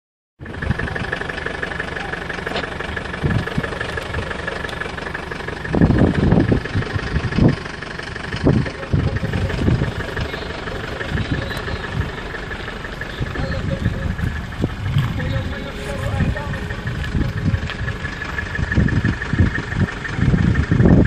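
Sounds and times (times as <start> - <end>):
wind on microphone: 13.2 - 21.0.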